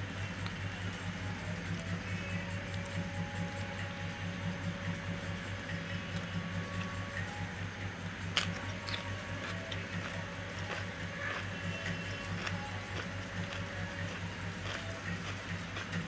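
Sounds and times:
low hum: 0:00.0 - 0:16.0
wet chewing: 0:08.4 - 0:16.0.

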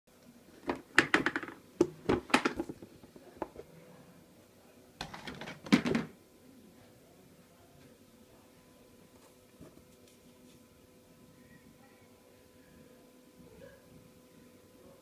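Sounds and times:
plastic tub clattering: 0:00.6 - 0:03.7, 0:05.0 - 0:06.2.

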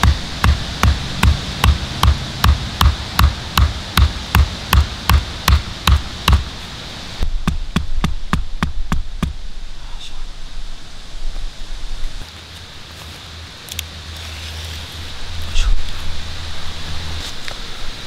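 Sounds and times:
stake hammered into ground: 0:00.0 - 0:06.5.

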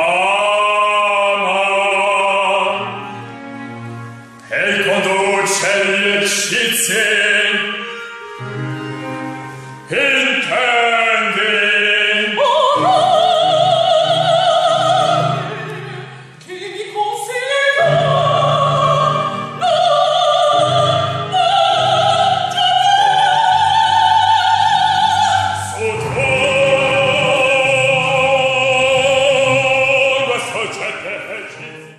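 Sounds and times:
musical accompaniment: 0:00.0 - 0:31.9
woman singing opera: 0:09.9 - 0:31.6.

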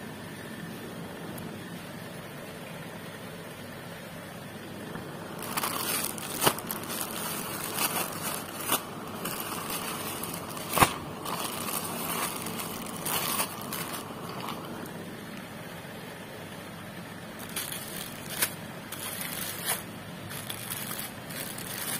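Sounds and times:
plastic garment bag crinkling: 0:05.2 - 0:14.9, 0:17.4 - 0:21.9.

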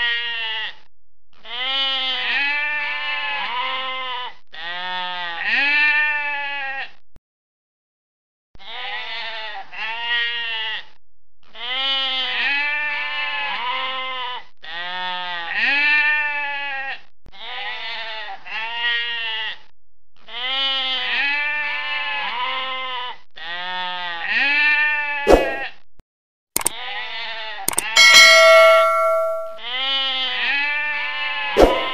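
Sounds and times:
sheep bleating: 0:01.5 - 0:06.9, 0:08.6 - 0:10.8, 0:11.6 - 0:19.6, 0:20.3 - 0:25.2
click and bell chime: 0:27.7 - 0:29.6.

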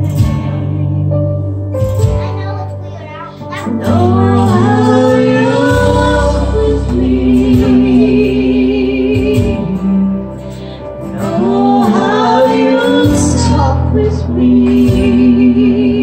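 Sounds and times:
backing music: 0:00.0 - 0:16.0
man and woman singing duet: 0:03.6 - 0:16.0.

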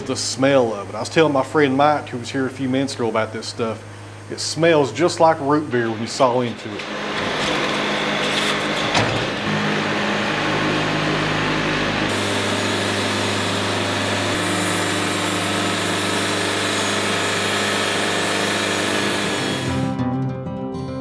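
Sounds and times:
band sawmill sawing log: 0:05.9 - 0:20.0.

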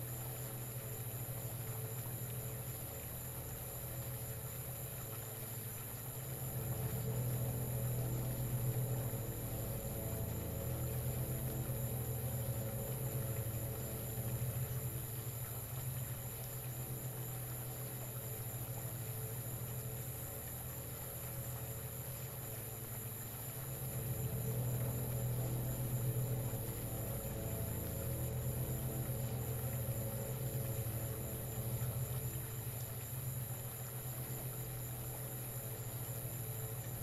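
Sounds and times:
low electric hum: 0:00.0 - 0:37.0.

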